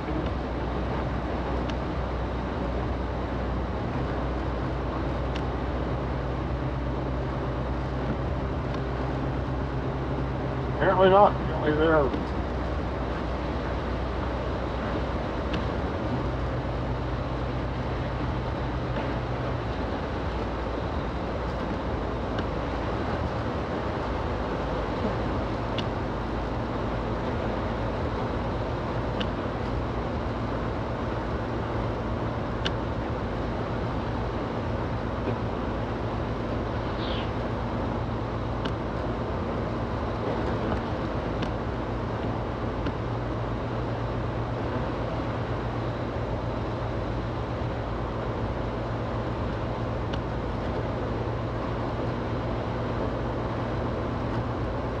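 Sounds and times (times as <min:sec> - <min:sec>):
car engine hum: 0:00.0 - 0:55.0
tyres and wind rushing: 0:00.0 - 0:55.0
light ticks: 0:01.5 - 0:01.8, 0:05.3 - 0:05.5, 0:08.1 - 0:08.9, 0:15.5 - 0:15.7, 0:21.4 - 0:22.6, 0:25.0 - 0:26.0, 0:29.1 - 0:29.8, 0:32.6 - 0:32.8, 0:38.6 - 0:39.1, 0:40.3 - 0:41.6, 0:42.8 - 0:43.0, 0:50.0 - 0:50.9.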